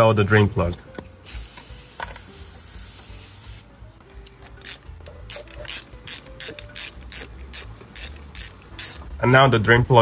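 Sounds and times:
spray can hissing: 0:01.2 - 0:03.7
ratchet wrench clicking: 0:04.5 - 0:09.2.

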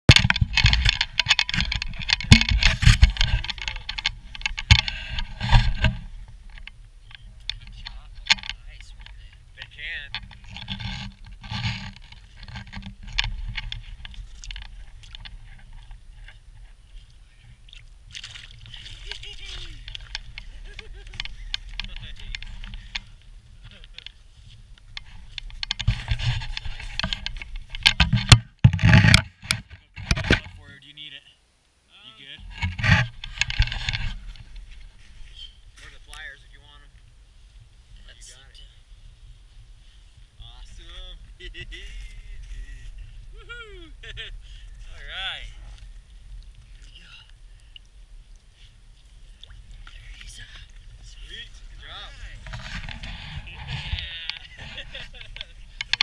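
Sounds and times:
sharp crackles and knocks: 0:00.0 - 0:30.8, 0:32.4 - 0:43.2, 0:44.0 - 0:56.0.

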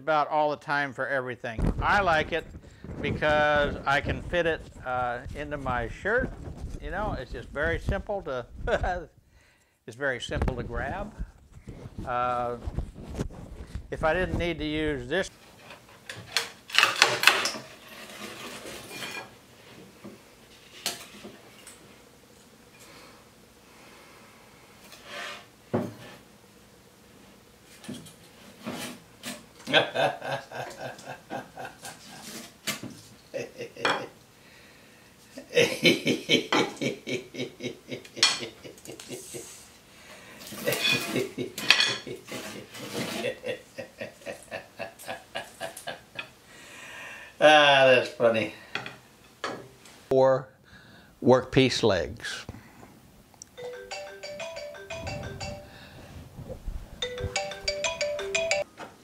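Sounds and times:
wooden strips clattering on metal: 0:15.6 - 0:19.3
phone ringtone melody: 0:53.6 - 0:56.0, 0:57.0 - 0:58.7.

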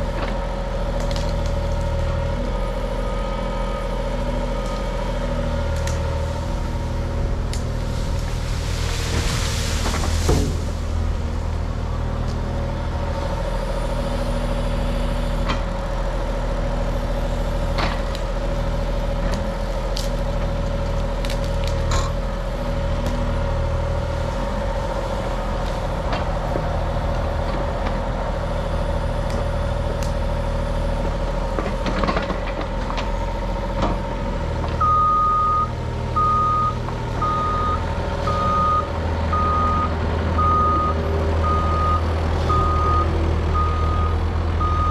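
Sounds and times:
diesel engine and hydraulics: 0:00.0 - 0:44.9
travel alarm beeping: 0:34.8 - 0:44.9.

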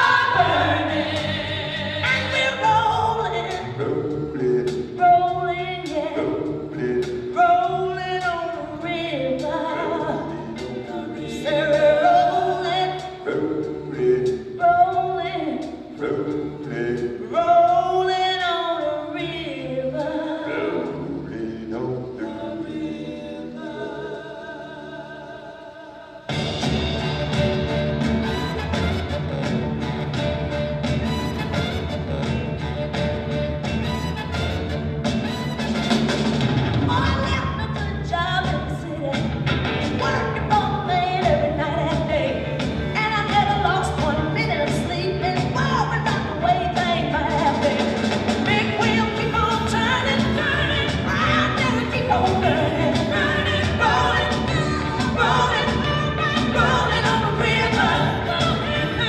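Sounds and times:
person singing: 0:00.0 - 0:15.4, 0:19.2 - 0:26.3
group of voices singing: 0:00.0 - 0:26.5, 0:39.8 - 0:59.0
full music track: 0:00.0 - 0:59.0
steady drum beat: 0:26.3 - 0:59.0.

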